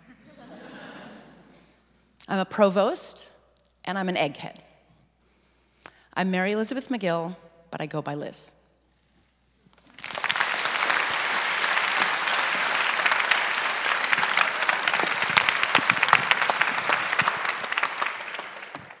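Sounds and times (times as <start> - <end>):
large audience applauding: 9.8 - 19.0.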